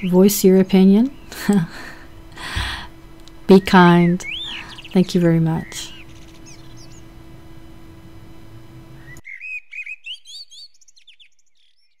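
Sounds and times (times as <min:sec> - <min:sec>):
small birds chirping: 0:00.0 - 0:02.7, 0:03.3 - 0:07.2, 0:08.9 - 0:12.0
low room hum: 0:00.0 - 0:09.2.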